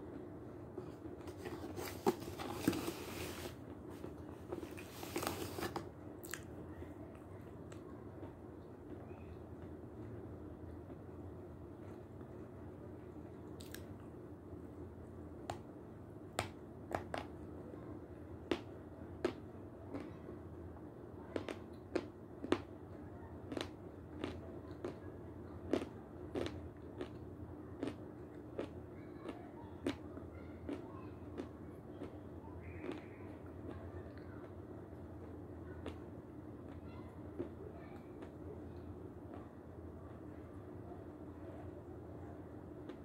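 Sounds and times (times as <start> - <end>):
faint steady hum: 0.0 - 43.0
chewing chalk crunches: 23.5 - 25.0, 25.7 - 27.2, 27.8 - 30.0, 31.4 - 33.0.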